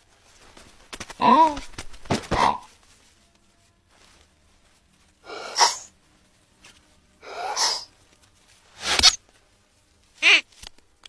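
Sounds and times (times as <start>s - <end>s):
cartoon bird sneeze-like bursts: 5.3s - 5.9s, 7.3s - 7.9s.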